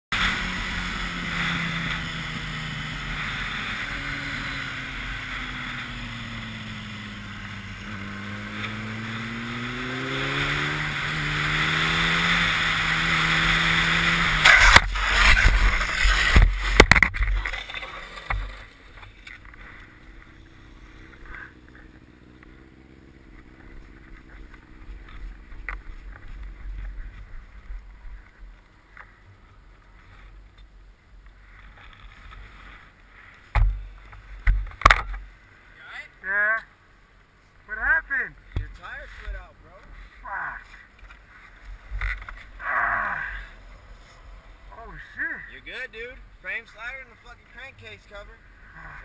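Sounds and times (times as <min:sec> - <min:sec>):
motorcycle crashing and scraping: 0:00.1 - 0:28.4, 0:38.5 - 0:46.6
motorcycle engine: 0:00.1 - 0:36.9, 0:37.6 - 0:49.0
faint engine idling: 0:12.4 - 0:49.0.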